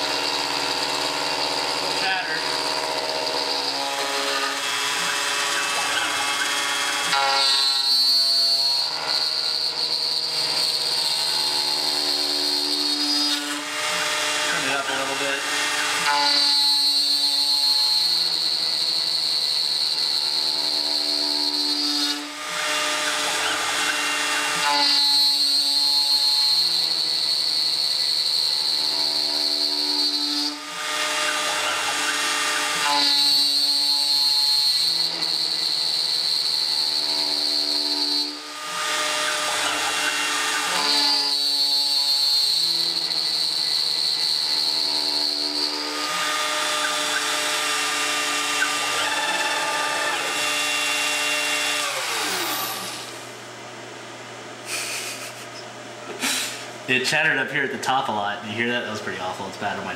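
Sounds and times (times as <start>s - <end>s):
router spindle whine: 0.0s - 55.8s
chatter whistle of milling metal: 42.4s - 45.5s.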